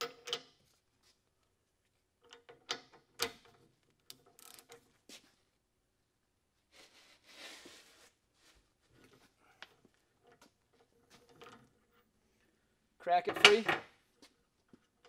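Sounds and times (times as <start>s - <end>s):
soft rustle: 6.8s - 12.5s.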